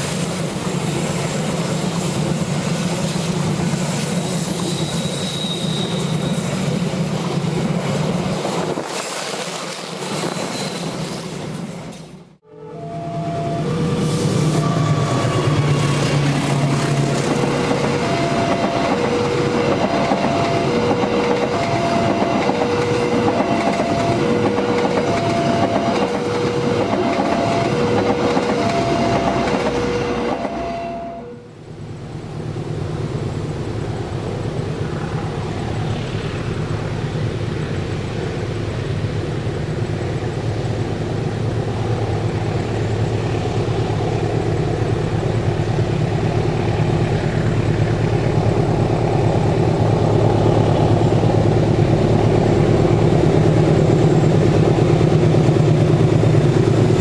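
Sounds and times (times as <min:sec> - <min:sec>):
diesel locomotive engine rumble: 0:00.0 - 0:57.0
train rushing and wheel clatter: 0:00.0 - 0:57.0
level crossing two-tone alarm: 0:17.6 - 0:31.3.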